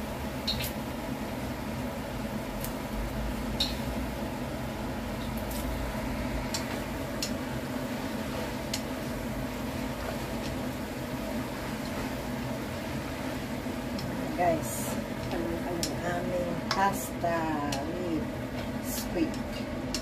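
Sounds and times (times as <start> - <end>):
kitchen equipment hum: 0.0 - 20.0
utensil tapping wok: 3.5 - 4.0, 6.4 - 7.5, 8.5 - 9.0, 15.1 - 20.0.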